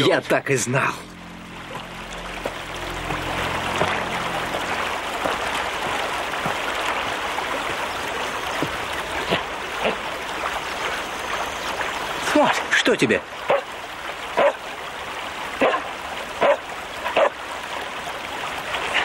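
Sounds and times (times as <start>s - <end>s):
low hum: 0.0s - 12.2s
stream water rushing: 0.0s - 19.0s.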